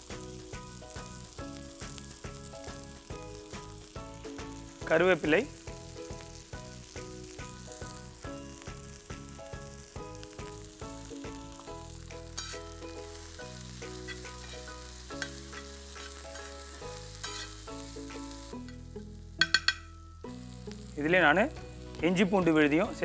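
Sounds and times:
food sizzling in hot oil: 0.0 - 23.0
soft background music: 0.0 - 23.0
spatula stirring: 13.8 - 16.6, 17.2 - 18.7.

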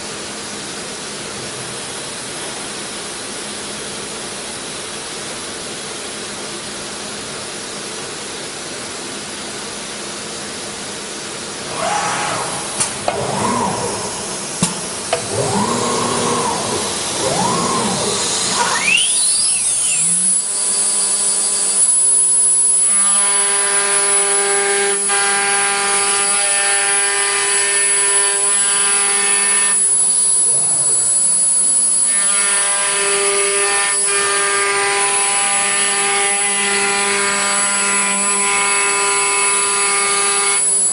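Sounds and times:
router axes whining: 11.6 - 40.9
spindle whine: 11.7 - 21.1, 29.7 - 32.1.

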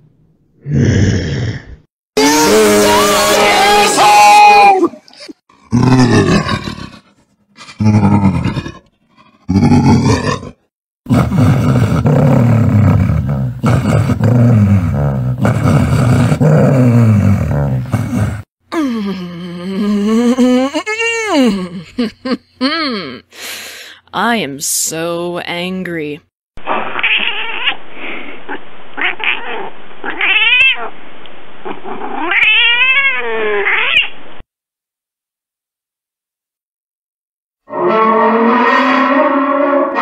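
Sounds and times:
deep angry growl: 0.6 - 4.2, 5.5 - 18.5, 37.7 - 40.0
cat yowling: 2.2 - 4.8, 26.8 - 27.8, 29.0 - 30.9, 32.1 - 34.1.

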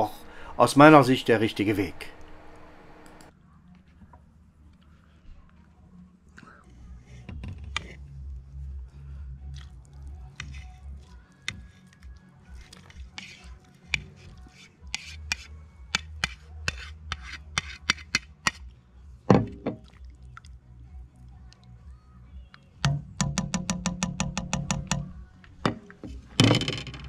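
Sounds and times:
plastic spoon scraping plastic plate: 12.5 - 18.2.

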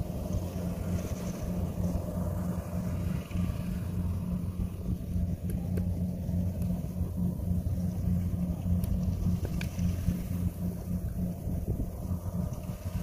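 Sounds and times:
combine harvester engine droning: 0.0 - 13.0.

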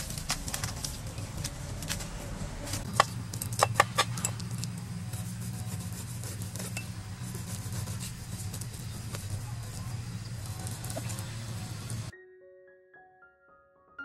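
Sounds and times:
steady low hum: 0.0 - 12.1
cleaver scraping fish scales: 2.7 - 12.1.

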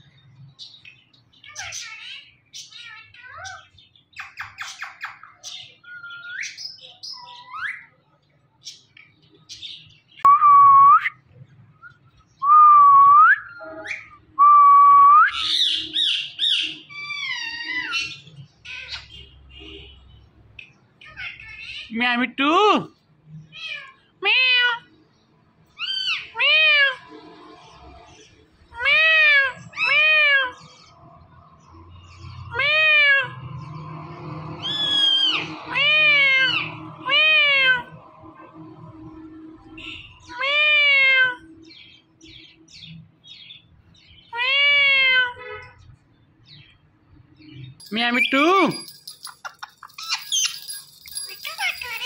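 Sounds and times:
parakeet chirps: 1.5 - 7.9
parakeet mimicking cat meow: 16.9 - 19.1, 23.5 - 25.0, 25.8 - 27.1, 28.7 - 30.8, 32.5 - 33.5, 34.7 - 38.0, 40.3 - 41.5, 44.3 - 45.7.

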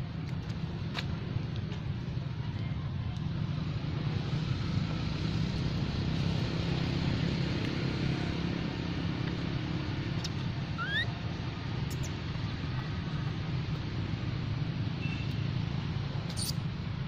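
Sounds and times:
short rising squeak: 10.2 - 11.1, 16.3 - 16.6.

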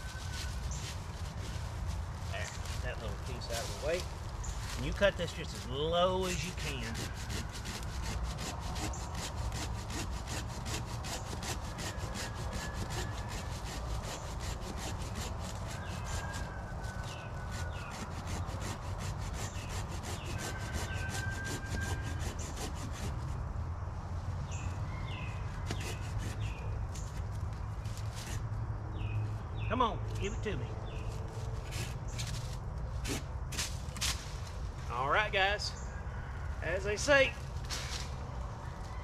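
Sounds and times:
hand saw cutting wood: 4.8 - 23.4, 25.6 - 26.6, 33.0 - 33.2.

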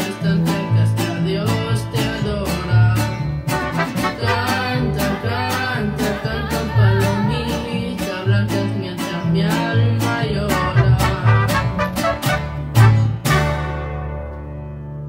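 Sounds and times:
plucked bass guitar line: 0.0 - 15.0
strummed guitars: 0.0 - 15.0
trumpets: 3.5 - 4.8, 10.7 - 14.4
woman singing with vibrato: 4.0 - 11.5.

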